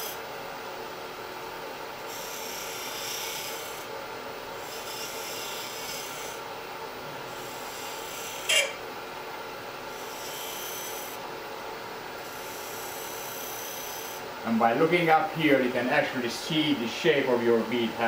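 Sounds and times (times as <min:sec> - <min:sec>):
wood lathe motor humming: 0:00.0 - 0:00.2, 0:02.0 - 0:03.9, 0:04.6 - 0:06.5, 0:07.1 - 0:08.8, 0:09.8 - 0:11.3, 0:12.1 - 0:14.3
tool scraping wood: 0:02.1 - 0:03.9, 0:04.6 - 0:06.4, 0:07.3 - 0:08.8, 0:10.0 - 0:11.2
sharp squeak: 0:07.5 - 0:08.8.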